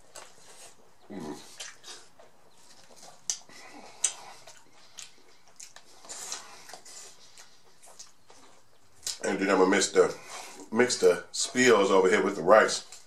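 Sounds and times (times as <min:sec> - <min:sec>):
chewing crunchy food: 0:00.0 - 0:09.5.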